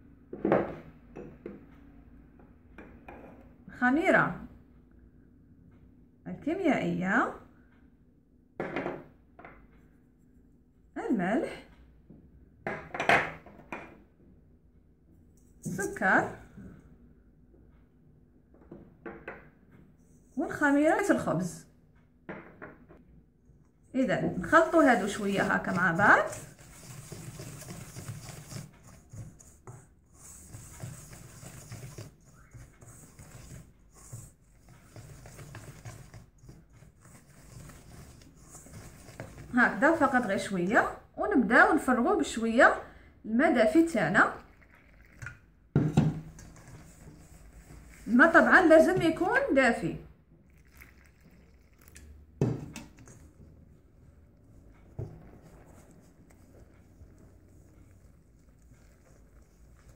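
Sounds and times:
batter worked by hand: 0:24.1 - 0:40.7, 0:44.3 - 0:49.3, 0:50.5 - 0:59.9
whisk swishing in bowl: 0:24.2 - 0:41.0, 0:44.2 - 0:49.4, 0:50.6 - 0:59.9
water pouring into a bowl: 0:44.4 - 0:45.4, 0:50.4 - 0:52.4.

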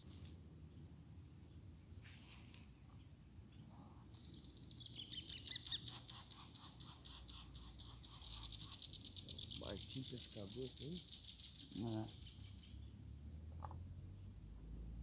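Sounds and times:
insects trilling: 0:00.0 - 0:15.0
small birds chirping: 0:01.5 - 0:13.0.

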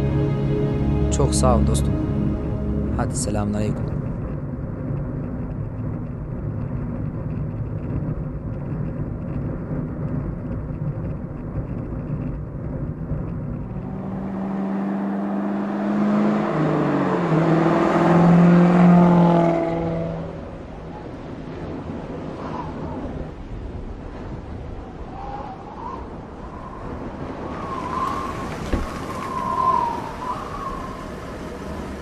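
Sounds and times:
held low tones: 0:00.0 - 0:04.6, 0:13.3 - 0:20.5
car engine and road rumble: 0:00.0 - 0:25.0, 0:26.3 - 0:32.0.

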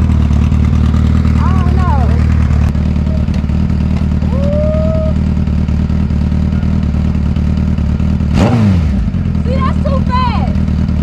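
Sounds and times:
motorcycle engine idling: 0:00.0 - 0:11.0.

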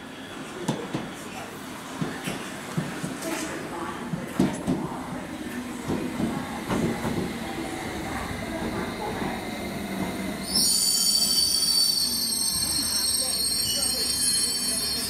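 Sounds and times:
high-pitched brake squeal: 0:10.4 - 0:15.0.

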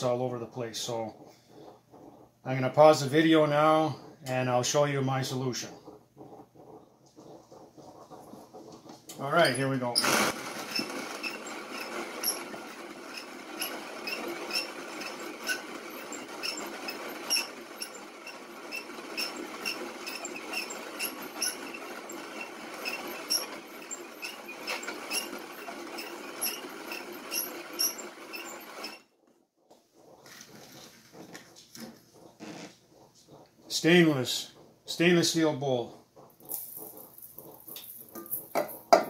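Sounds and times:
coffee mill grinding beans: 0:09.0 - 0:29.1, 0:36.3 - 0:39.0
squeaky crank click: 0:09.1 - 0:29.1.

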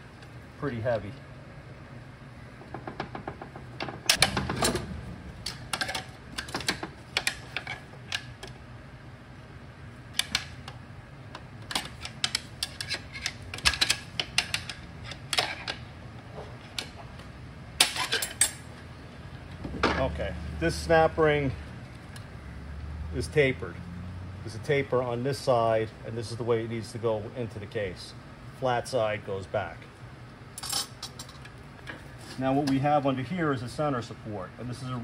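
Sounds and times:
metal clicks and scrapes: 0:11.6 - 0:15.8.

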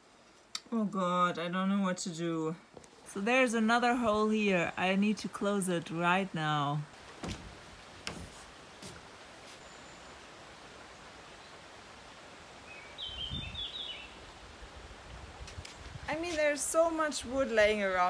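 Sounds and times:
bird chirping: 0:12.6 - 0:14.2.

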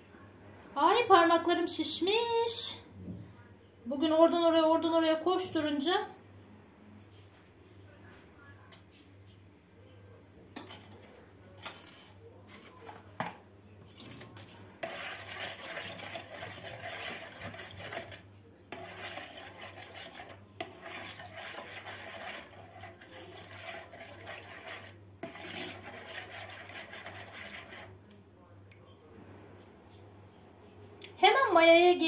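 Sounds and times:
metal spoon stirring in plastic bowl: 0:13.9 - 0:28.2.

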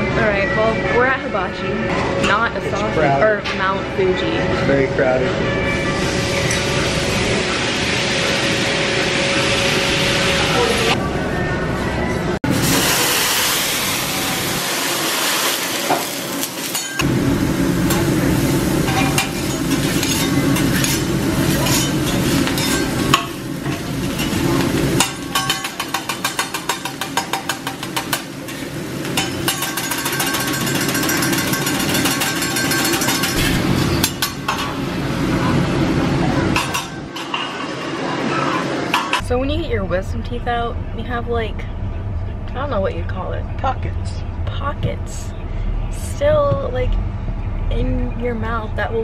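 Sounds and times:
food sizzling on a griddle: 0:12.5 - 0:34.0
metal spatulas scraping and clattering: 0:18.9 - 0:34.8.

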